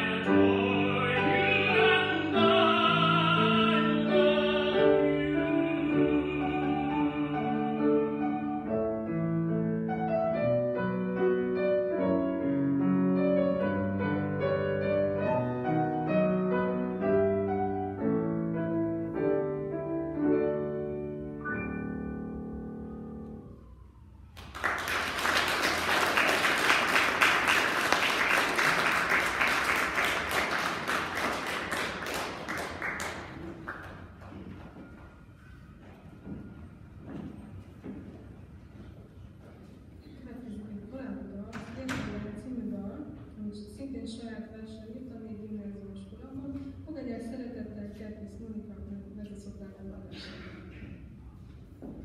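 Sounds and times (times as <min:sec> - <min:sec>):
grand piano playing: 0:00.0 - 0:24.1
audience applauding: 0:24.3 - 0:34.6.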